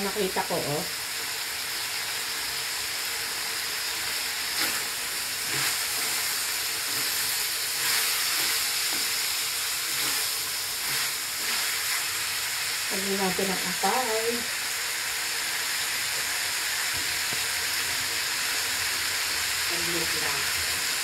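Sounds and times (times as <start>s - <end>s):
meat sizzling in a wok: 0.0s - 21.0s
wooden spoon scraping a pan: 4.5s - 12.2s.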